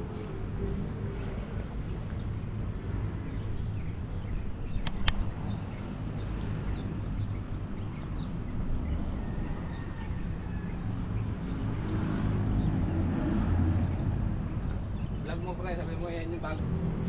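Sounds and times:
low outdoor rumble: 0.0 - 17.0
sharp clicks: 4.7 - 5.4.

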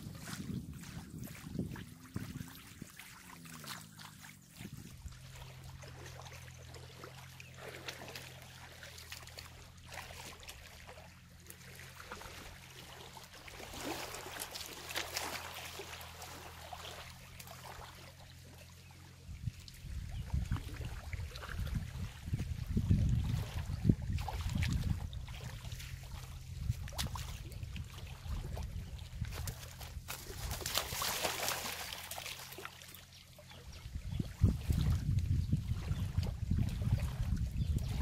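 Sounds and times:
low engine hum: 0.0 - 38.0
water trickling and splashing: 0.0 - 38.0.

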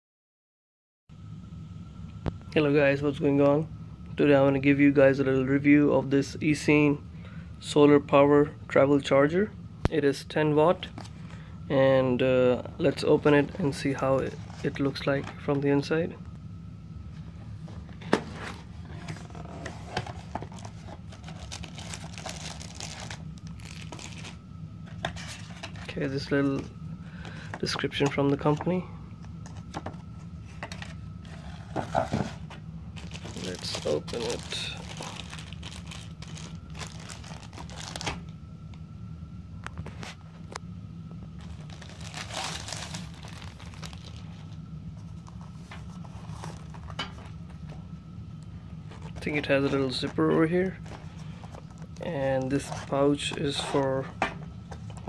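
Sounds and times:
steady low hum: 1.1 - 55.0
cardboard scraping: 17.7 - 24.3, 29.4 - 38.2
plastic bag crinkling: 20.5 - 24.4, 33.0 - 38.2, 41.4 - 44.6.

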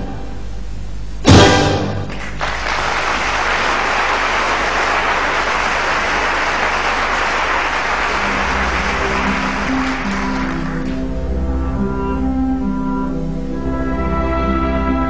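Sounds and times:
orchestral chord: 0.0 - 0.5, 1.2 - 2.2, 8.0 - 15.0
audience applause: 2.0 - 11.1.

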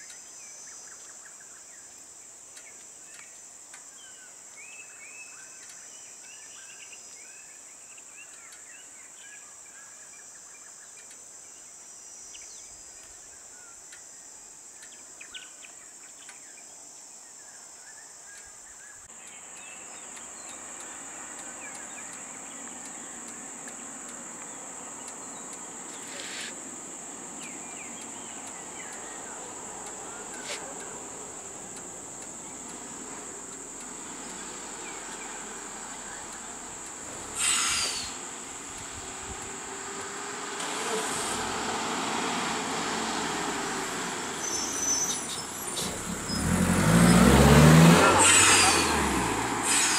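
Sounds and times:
insects droning: 0.0 - 49.9
birds chirping: 18.7 - 40.4.

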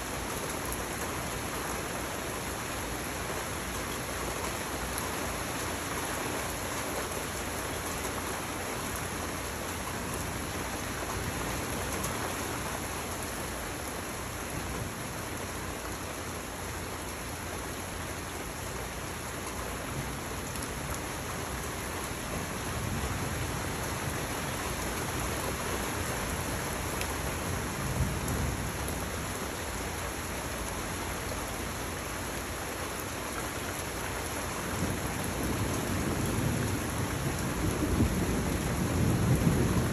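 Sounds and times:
steady rain falling: 0.0 - 39.9
low rumble of thunder: 22.2 - 29.4, 34.7 - 39.9.

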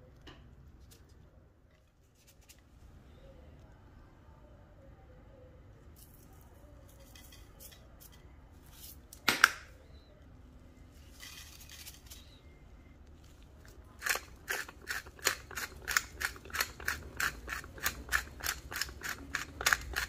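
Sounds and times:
spice shaker rattling: 11.1 - 12.4, 13.9 - 20.0.

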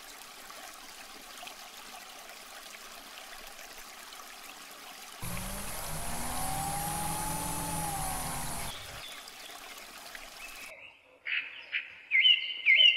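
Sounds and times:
water pouring and trickling: 0.0 - 10.7
small motor whine and hum: 5.2 - 9.0.

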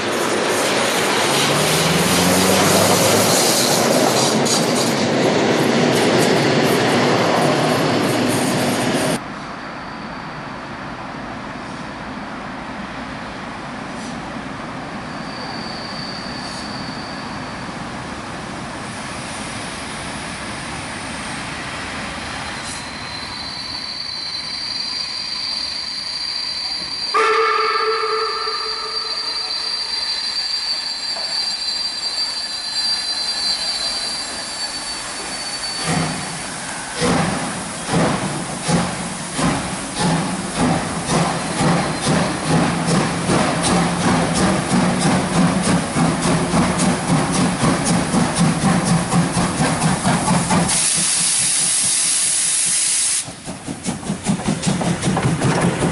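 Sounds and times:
steam hissing: 22.4 - 55.4
steam locomotive whistle: 22.6 - 36.9.

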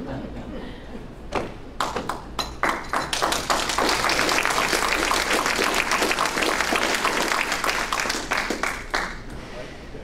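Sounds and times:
audience applause: 2.1 - 9.3.

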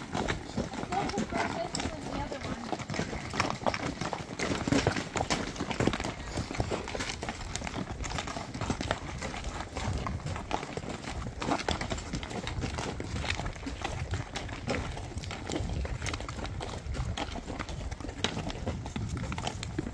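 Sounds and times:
horse hooves clopping on rocks: 0.0 - 19.9.

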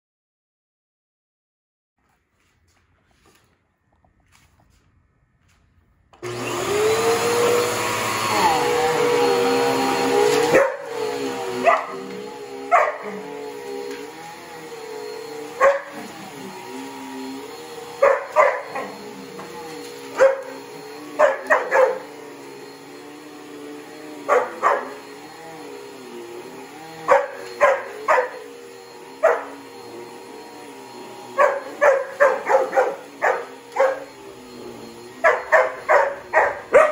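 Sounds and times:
vacuum cleaner hum: 6.2 - 36.9
dog barking: 10.4 - 11.0, 11.6 - 13.2, 15.6 - 16.0, 18.0 - 19.0, 20.1 - 22.1, 24.3 - 25.0, 27.1 - 28.5, 29.2 - 29.6, 31.3 - 34.1, 35.2 - 36.9.

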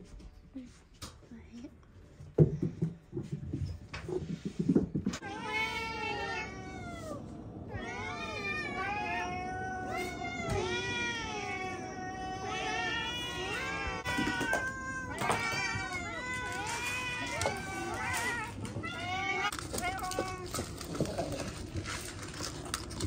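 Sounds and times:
knocks and thumps: 2.2 - 5.2
cats meowing: 5.1 - 22.0.

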